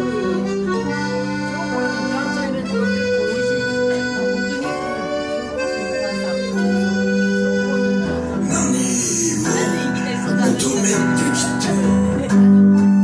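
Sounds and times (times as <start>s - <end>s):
harmonica playing: 0.0s - 13.0s
strummed acoustic guitars: 0.0s - 13.0s.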